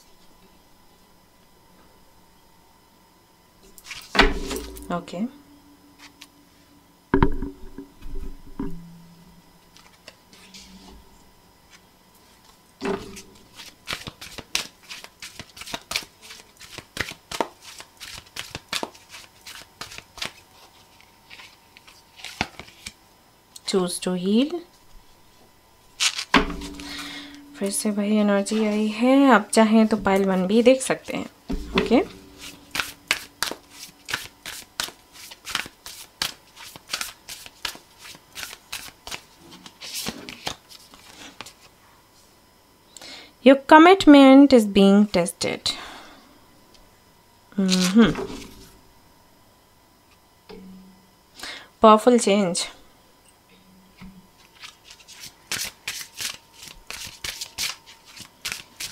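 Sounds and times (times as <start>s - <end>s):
cards being shuffled: 11.7s - 23.0s, 26.0s - 27.2s, 31.8s - 41.7s, 47.6s - 48.7s, 54.4s - 58.9s.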